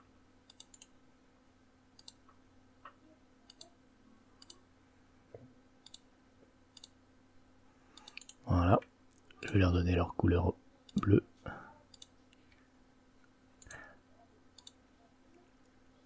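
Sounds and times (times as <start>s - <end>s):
faint steady hum: 0.0s - 16.0s
computer mouse clicks: 0.4s - 1.0s, 2.0s - 3.8s, 4.4s - 4.6s, 5.8s - 6.1s, 6.7s - 7.0s, 7.9s - 8.4s, 11.9s - 12.6s, 13.6s - 13.8s, 14.5s - 14.8s.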